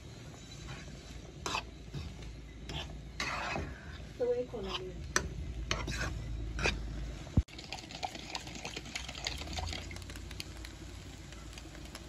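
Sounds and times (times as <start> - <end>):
fork scraping on frying pan: 0.6 - 3.9, 5.7 - 6.8.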